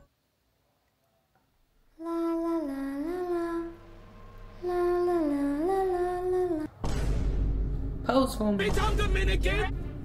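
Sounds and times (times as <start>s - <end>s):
person humming a tune: 1.9s - 3.8s, 4.6s - 6.7s.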